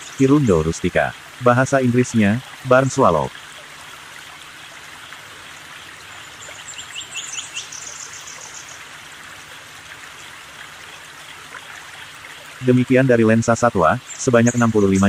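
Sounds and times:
high bird chirps: 0:06.4 - 0:08.8.

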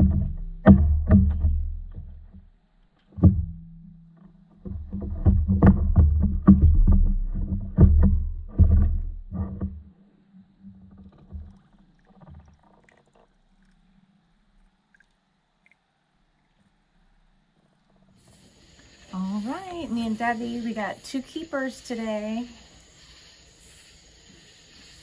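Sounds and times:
knocks and thumps on board deck: 0:04.6 - 0:09.8.

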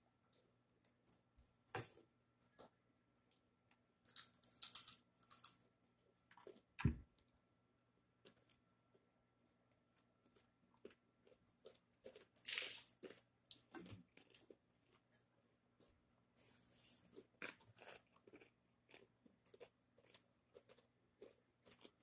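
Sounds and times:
thump: 0:06.8 - 0:07.0
crispy pork skin crunching: 0:10.3 - 0:14.6.

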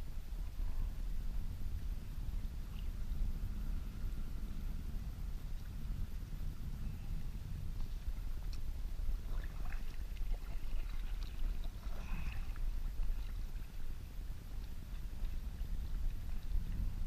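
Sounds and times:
water splashing around kayak: 0:00.0 - 0:17.0
wind rumble on microphone: 0:00.0 - 0:17.0.

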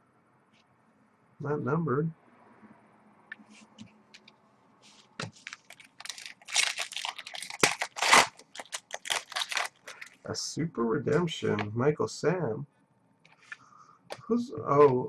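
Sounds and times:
trading cards shuffling: 0:03.4 - 0:10.2.

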